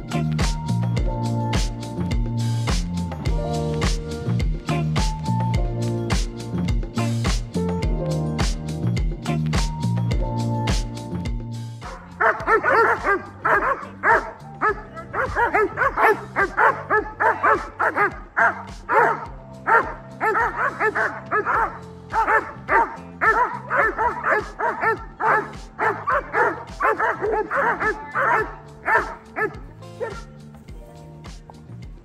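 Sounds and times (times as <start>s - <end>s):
background music with bass line: 0.0s - 32.0s
dogs barking and yipping: 11.8s - 30.7s.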